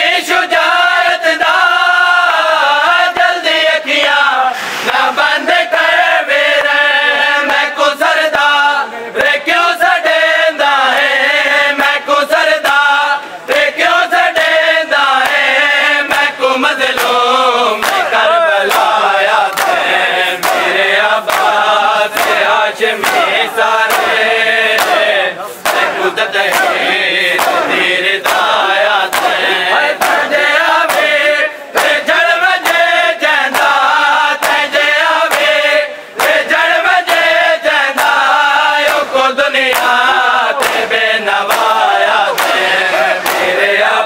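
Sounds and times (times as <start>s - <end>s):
men chanting in chorus: 0.0s - 44.0s
hands slapping chests: 16.9s - 17.2s, 17.8s - 37.3s, 37.9s - 43.7s.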